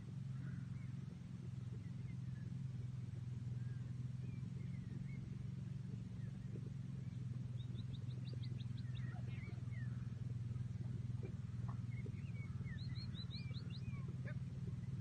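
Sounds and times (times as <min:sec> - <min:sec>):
engine idling: 0:00.0 - 0:15.0
bird chirps: 0:03.6 - 0:15.0.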